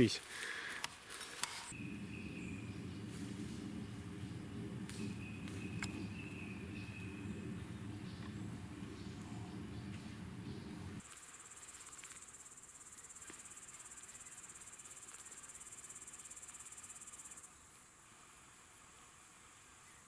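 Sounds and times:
crickets chirring: 0:00.0 - 0:20.0
low rumble: 0:01.7 - 0:11.0.

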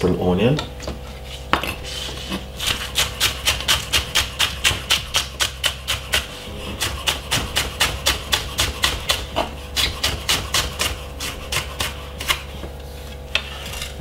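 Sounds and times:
knife chopping on wooden board: 0:01.5 - 0:12.8.

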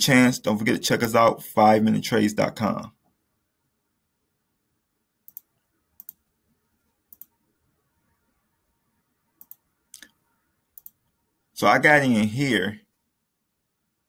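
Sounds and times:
computer mouse button clicking: 0:05.3 - 0:06.2, 0:07.1 - 0:07.3, 0:10.8 - 0:11.0.

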